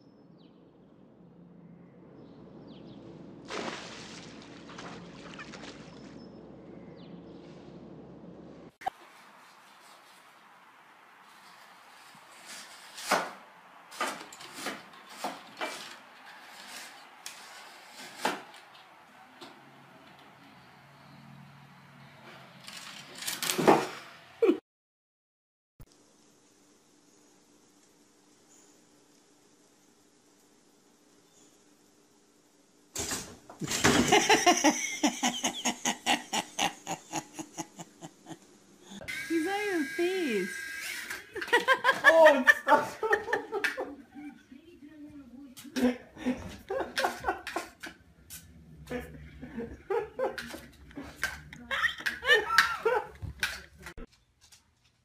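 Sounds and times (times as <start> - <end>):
person laughing hard: 33.6 - 39.0, 41.3 - 44.4, 45.8 - 47.8, 48.9 - 53.2.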